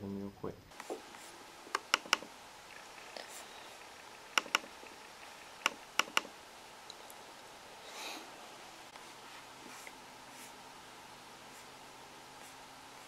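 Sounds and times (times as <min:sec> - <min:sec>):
computer mouse clicks: 0:01.7 - 0:02.3, 0:04.3 - 0:04.7, 0:05.6 - 0:06.3.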